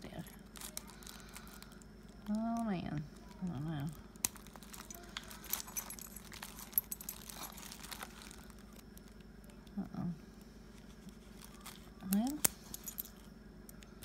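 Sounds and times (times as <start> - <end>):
bubble wrap crinkling: 0.0 - 9.6, 10.6 - 12.4
keys clinking on padlock: 4.3 - 8.6, 11.6 - 13.8.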